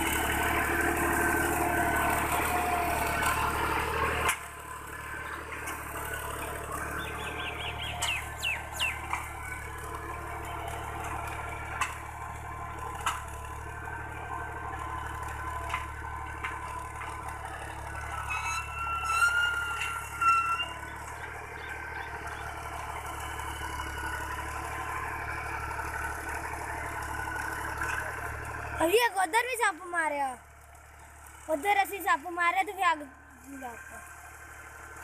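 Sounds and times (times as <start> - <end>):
tractor diesel engine under load: 0.0 - 35.0.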